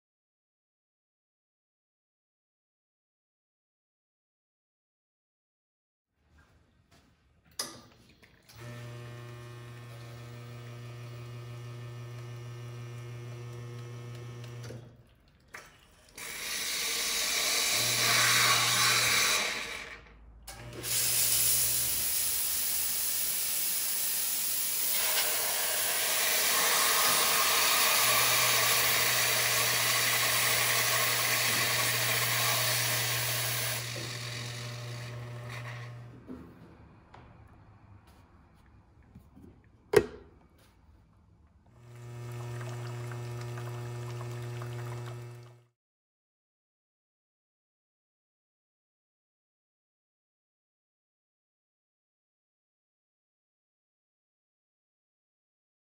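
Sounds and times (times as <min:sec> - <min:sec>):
espresso machine pump humming: 0:08.6 - 0:14.8, 0:16.2 - 0:19.7, 0:20.7 - 0:36.1, 0:41.8 - 0:45.7
steam wand hissing: 0:16.2 - 0:19.6, 0:20.8 - 0:34.9.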